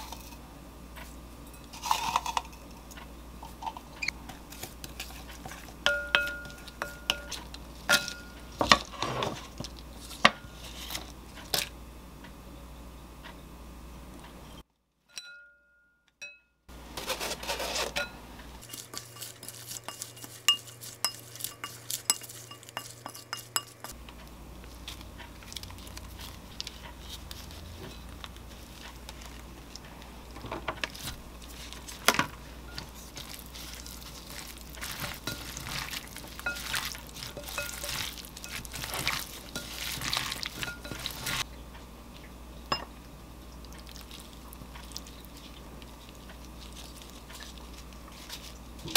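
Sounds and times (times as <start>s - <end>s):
wooden spoon against glass bowl: 3.4s - 8.9s, 17.6s - 24.0s, 30.8s - 41.4s.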